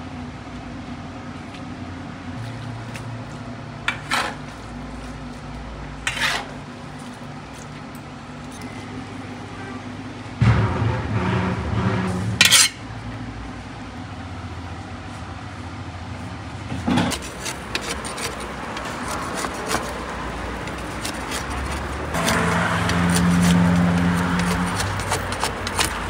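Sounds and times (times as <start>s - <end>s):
street background noise: 0.0s - 26.0s
vehicle engine hum: 0.0s - 26.0s
metal tools scraping clay: 3.9s - 4.7s, 6.0s - 6.6s, 12.4s - 12.8s, 16.9s - 26.0s.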